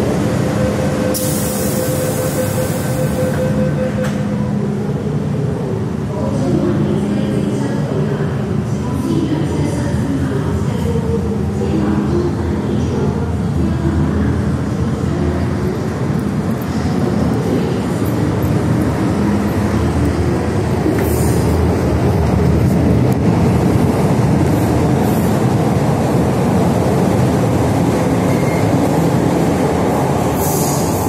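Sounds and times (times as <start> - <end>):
subway train rumbling past: 0.0 - 31.0.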